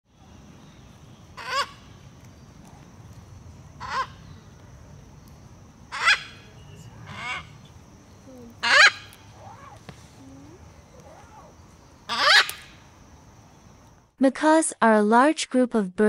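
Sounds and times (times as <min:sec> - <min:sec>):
macaws squawking: 0:01.4 - 0:01.9, 0:03.8 - 0:04.3, 0:05.9 - 0:07.8, 0:08.4 - 0:12.8.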